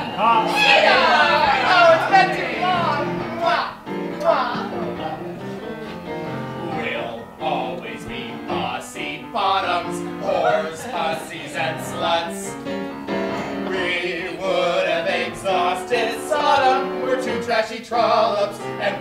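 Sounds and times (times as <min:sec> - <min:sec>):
instrumental accompaniment: 0:00.0 - 0:17.6
two men singing a duet: 0:06.6 - 0:12.6, 0:13.6 - 0:19.0.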